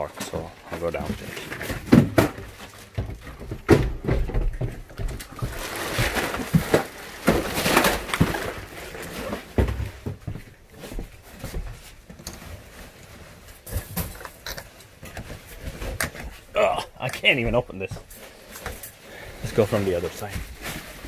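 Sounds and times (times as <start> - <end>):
footsteps on wooden stairs: 1.7 - 12.2, 17.2 - 18.8.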